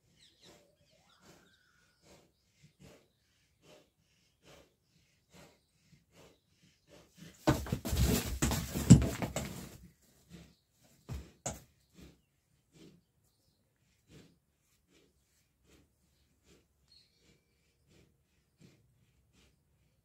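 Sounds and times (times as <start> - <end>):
cattle laboured breathing: 0.0 - 20.0.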